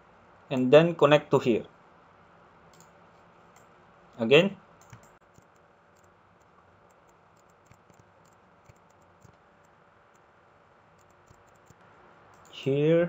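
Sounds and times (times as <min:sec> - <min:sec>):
computer mouse clicks: 0:02.7 - 0:02.9, 0:04.8 - 0:09.4, 0:11.0 - 0:12.5.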